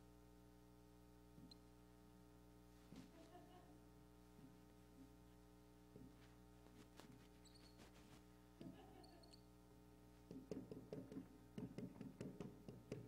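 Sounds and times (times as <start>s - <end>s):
low electrical hum: 0.0s - 13.0s
marker squeaking on whiteboard: 7.1s - 8.0s, 8.6s - 9.5s.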